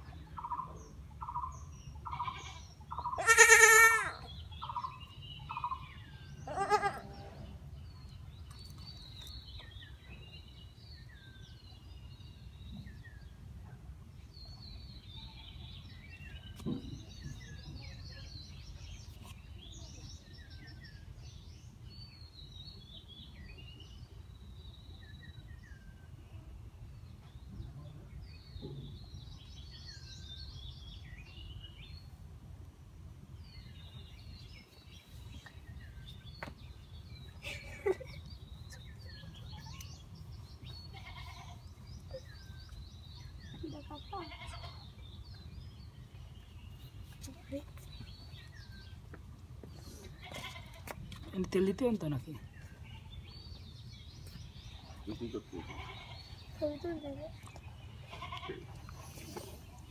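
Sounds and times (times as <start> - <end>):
small birds chirping: 0.0 - 32.3, 33.2 - 59.9
goat kid bleating in distress: 2.1 - 4.3, 6.4 - 7.2, 40.9 - 41.6, 44.1 - 44.8.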